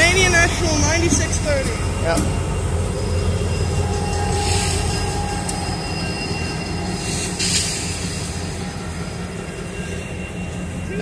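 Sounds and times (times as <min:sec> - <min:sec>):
locomotive engine rumble: 0:00.0 - 0:11.0
wheel-on-rail noise: 0:00.0 - 0:11.0
thin wheel squeal: 0:02.9 - 0:11.0.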